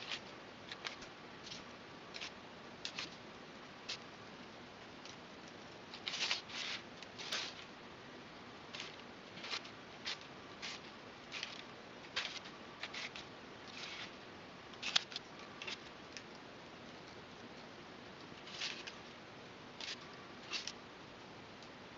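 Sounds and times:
knife scratching through straw: 0:06.0 - 0:07.7, 0:08.7 - 0:11.6, 0:12.2 - 0:14.2, 0:18.5 - 0:18.9.

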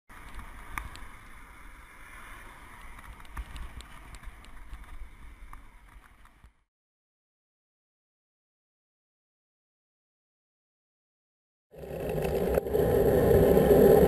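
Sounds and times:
road noise: 0:11.8 - 0:14.0
rushing wind on microphone: 0:11.8 - 0:14.0.

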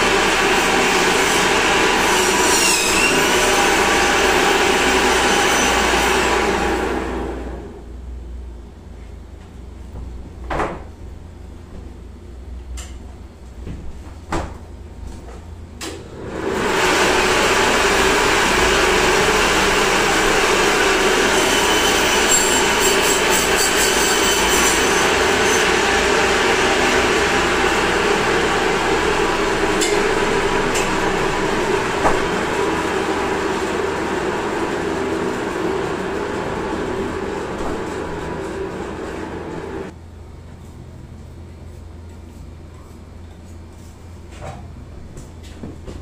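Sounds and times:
band saw cutting meat: 0:00.0 - 0:06.6, 0:16.8 - 0:39.6.

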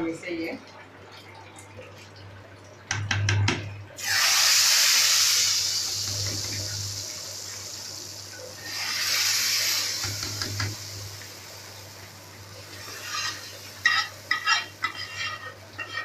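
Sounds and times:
hot oil sizzling in a pot: 0:04.0 - 0:16.0.

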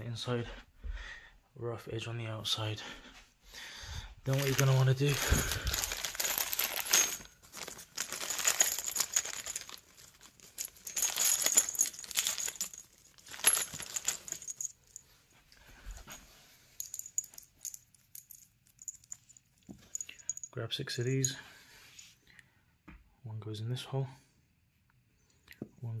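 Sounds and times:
plastic bags crinkling: 0:04.3 - 0:15.0
metal screws clinking: 0:04.3 - 0:15.2, 0:16.8 - 0:21.4.

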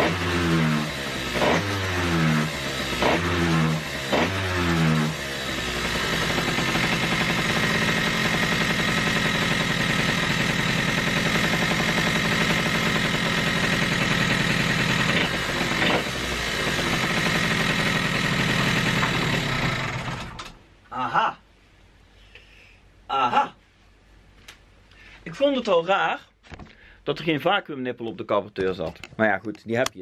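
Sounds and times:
scooter engine idling: 0:00.0 - 0:20.5.

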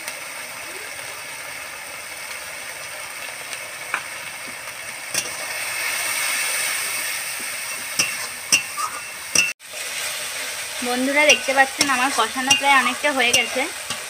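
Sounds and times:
masala sizzling in a pan: 0:00.0 - 0:14.0
metal spatula scraping a pan: 0:05.1 - 0:10.1, 0:10.8 - 0:14.0.

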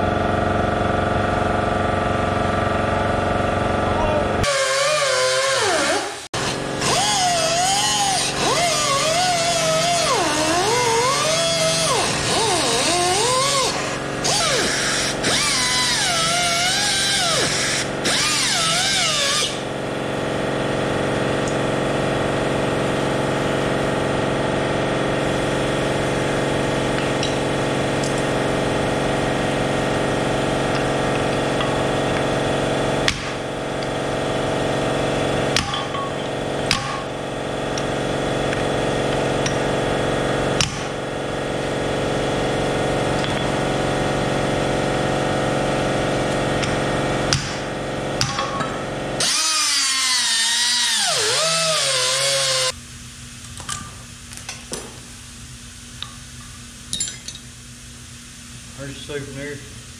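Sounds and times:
steady machine hum: 0:00.0 - 0:04.6, 0:06.0 - 0:59.9
angle grinder cutting steel: 0:04.4 - 0:19.6, 0:49.2 - 0:52.8
sharp metal knocks: 0:35.5 - 0:37.2.

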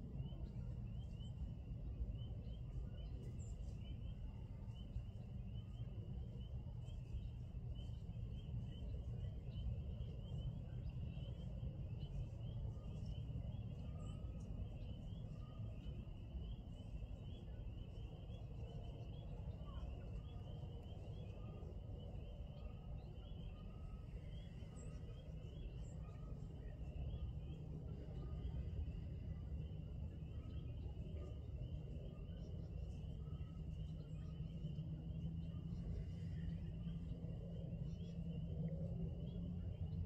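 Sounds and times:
low steady rumble: 0:00.0 - 0:40.0.

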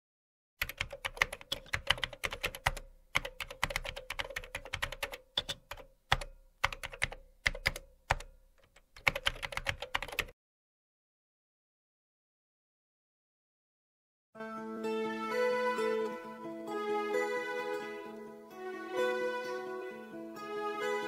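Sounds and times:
keyboard typing: 0:00.6 - 0:10.3.

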